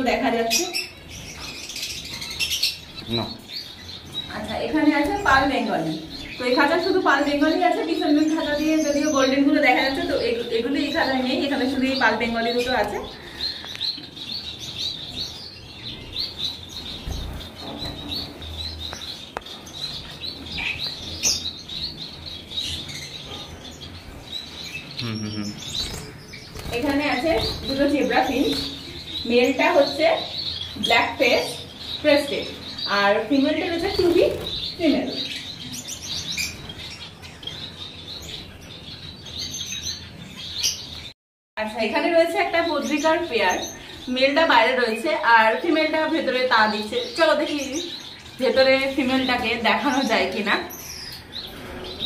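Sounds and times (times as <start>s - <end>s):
finches chirping: 0.0s - 41.1s, 41.7s - 52.0s.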